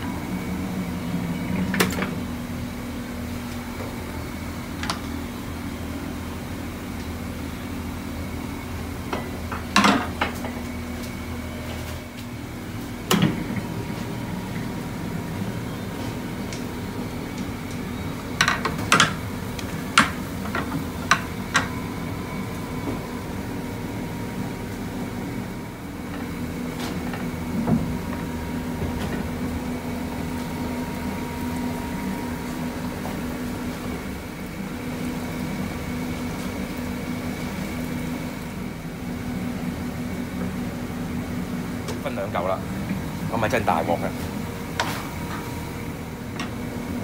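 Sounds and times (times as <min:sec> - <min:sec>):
mechanical hum: 0:00.0 - 0:47.0.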